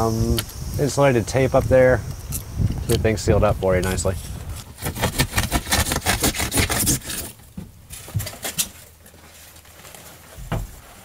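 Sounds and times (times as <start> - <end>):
foam ripping: 4.6 - 11.0
blade sawing through foam: 4.8 - 7.4.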